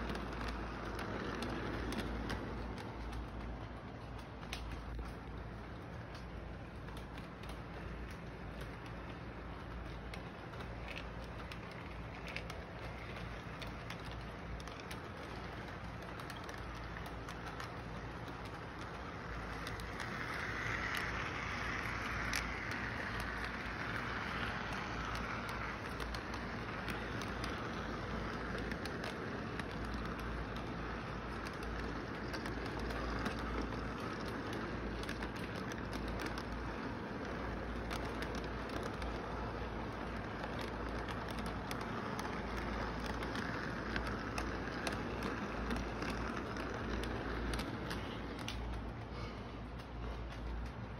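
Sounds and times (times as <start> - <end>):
model train rolling on track: 0.0 - 50.9.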